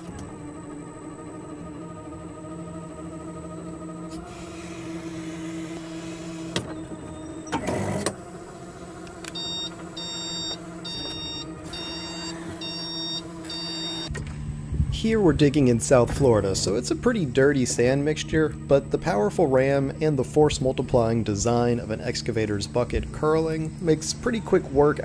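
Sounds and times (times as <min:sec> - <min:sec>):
electric loader hydraulic whine: 0:00.0 - 0:25.0
electronic beeper: 0:09.3 - 0:14.1.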